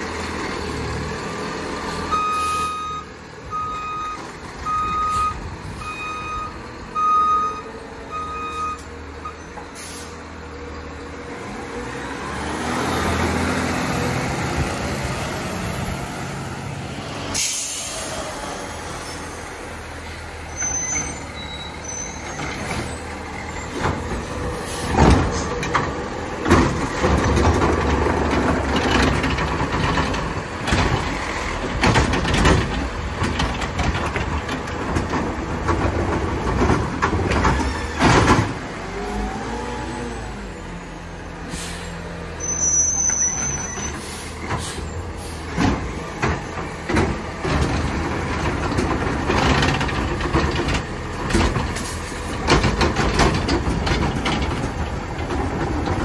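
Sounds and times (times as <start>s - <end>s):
garbage truck engine rumbling: 0.0s - 56.0s
air brake hisses and bangs: 9.7s - 10.2s, 17.3s - 18.4s, 41.4s - 42.1s, 43.8s - 45.7s.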